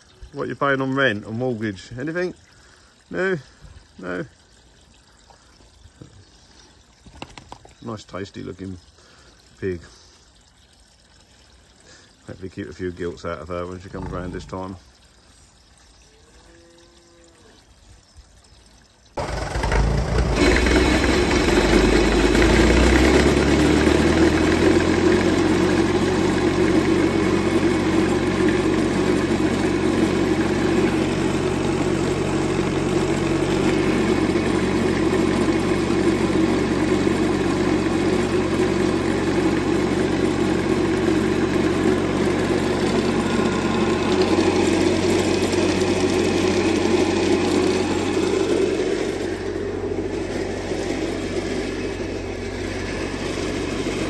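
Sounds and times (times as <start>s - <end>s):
engine running steadily: 19.2s - 54.0s.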